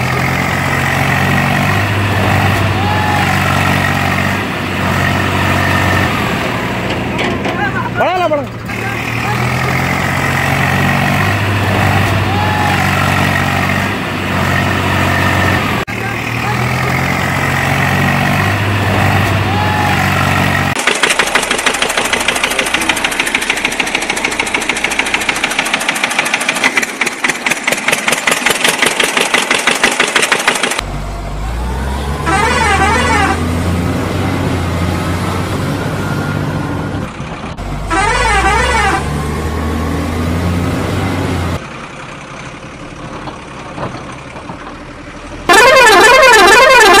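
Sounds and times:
fast even rattling pulse: 20.8 - 30.8
warbling horn blasts: 32.2 - 33.6, 37.9 - 39.2, 45.5 - 47.0.

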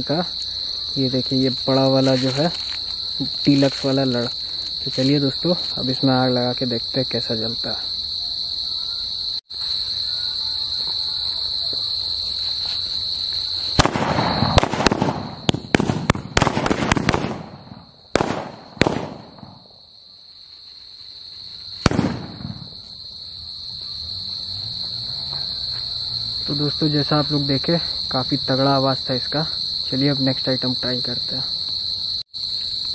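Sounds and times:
crickets trilling: 0.0 - 32.9
firecrackers banging: 13.8 - 19.6, 21.8 - 22.8.

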